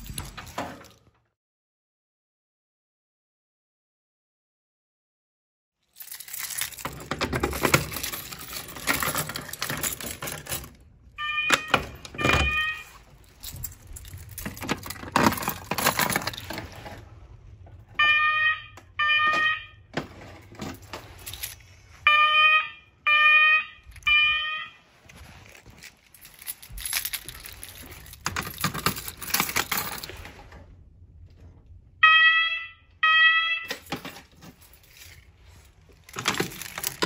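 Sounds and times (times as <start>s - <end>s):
rustling and clattering: 6.0s - 11.0s, 11.6s - 17.9s, 19.9s - 22.0s, 24.8s - 31.8s, 33.7s - 37.0s
fire alarm horns: 11.2s - 13.6s, 18.0s - 20.4s, 21.4s - 25.3s, 32.0s - 34.0s
footsteps: 23.9s - 28.2s.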